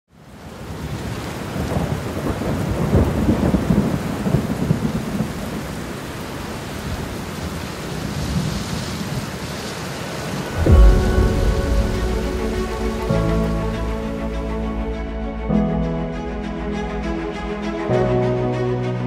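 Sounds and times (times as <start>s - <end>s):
rain falling: 0.1s - 15.5s
low rumble of thunder: 1.6s - 5.9s, 10.6s - 16.2s.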